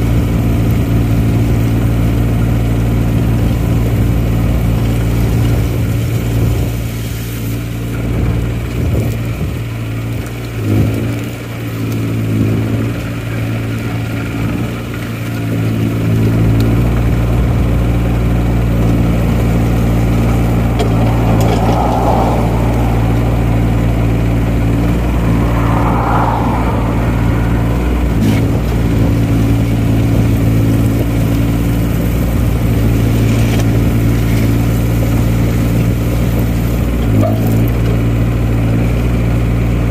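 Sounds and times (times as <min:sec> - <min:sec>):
diesel engine rumbling: 0:00.0 - 0:39.9
brief higher rushing sounds: 0:19.1 - 0:30.0.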